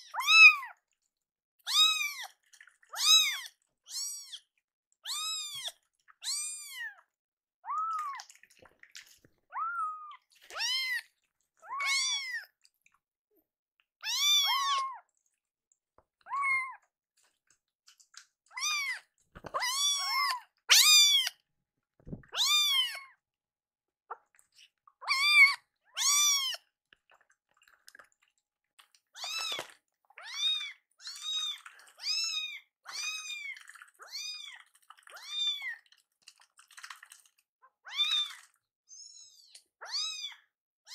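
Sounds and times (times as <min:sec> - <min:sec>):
kittens meowing: 0:11.6 - 0:12.4, 0:14.0 - 0:15.0, 0:18.6 - 0:21.4, 0:22.2 - 0:23.1.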